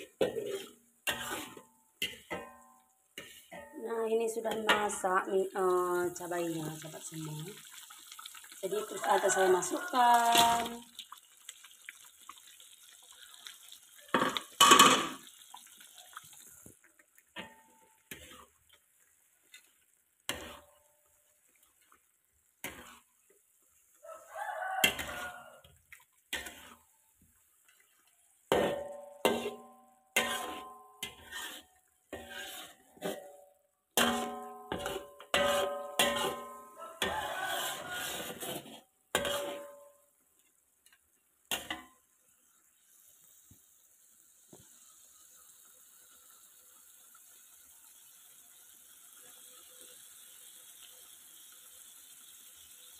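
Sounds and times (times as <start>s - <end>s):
metal spatula scraping wok: 0.0s - 2.6s, 3.2s - 5.4s, 8.7s - 10.8s, 17.4s - 18.6s, 19.4s - 20.8s, 22.6s - 23.9s, 24.6s - 26.9s, 28.5s - 33.4s, 34.0s - 39.9s
faint sizzle: 0.0s - 52.9s.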